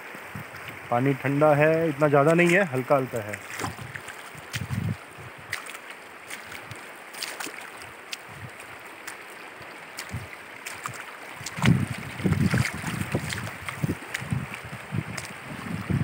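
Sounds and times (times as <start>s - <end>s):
feet wading through water: 0.0s - 16.0s
river water over pebbles: 0.0s - 16.0s
wind buffeting microphone: 0.2s - 1.0s, 3.5s - 5.6s, 7.8s - 8.8s, 10.0s - 16.0s.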